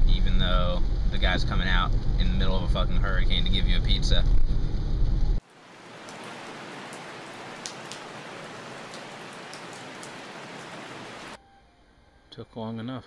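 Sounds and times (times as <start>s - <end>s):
steady rain falling: 5.4s - 11.4s
sharp raindrop ticks: 5.6s - 11.4s.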